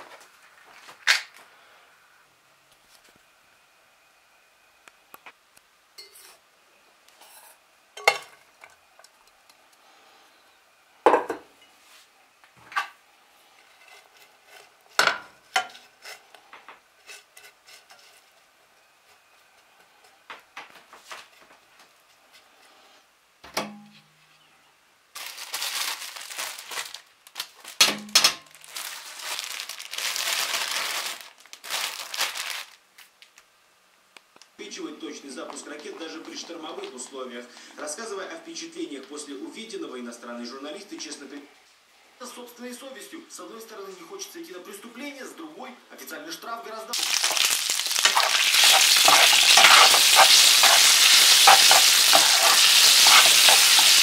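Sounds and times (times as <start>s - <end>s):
loud crackling hiss frying: 47.0s - 54.0s
utensils knocking and scraping pan: 48.0s - 54.0s.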